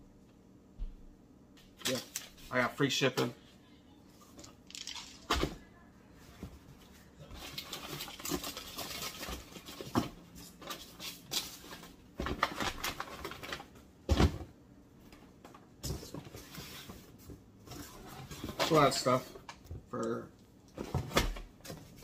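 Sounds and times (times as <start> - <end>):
cardboard and packaging rustling: 6.2 - 14.4, 15.4 - 19.6.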